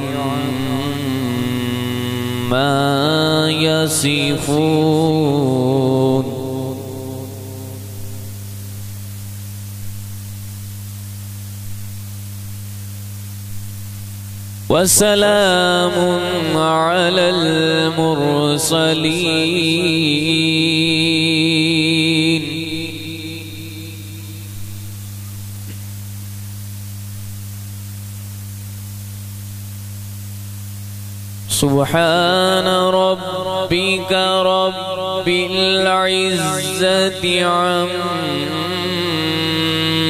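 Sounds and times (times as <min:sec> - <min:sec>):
electrical hum: 0:00.0 - 0:40.0
microphone hiss: 0:00.0 - 0:40.0
faint click: 0:25.6 - 0:25.9.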